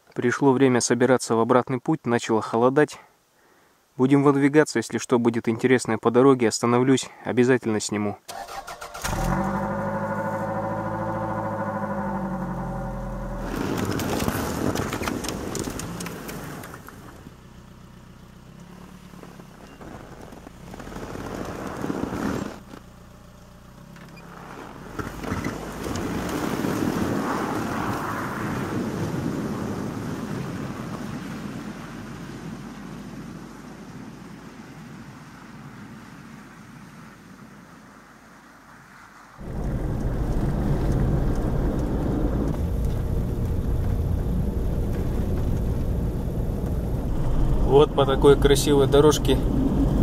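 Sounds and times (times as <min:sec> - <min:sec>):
car driving through snow: 0:08.4 - 0:50.0
car engine idling: 0:09.0 - 0:14.2, 0:17.0 - 0:19.7, 0:39.4 - 0:50.0.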